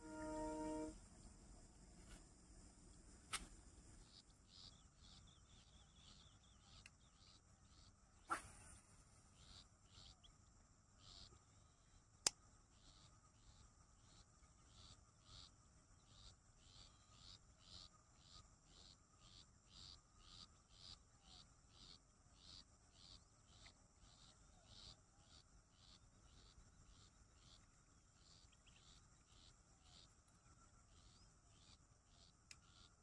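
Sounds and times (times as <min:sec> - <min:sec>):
steady high buzz: 0:00.0 - 0:01.0
insects chirping: 0:00.0 - 0:33.0.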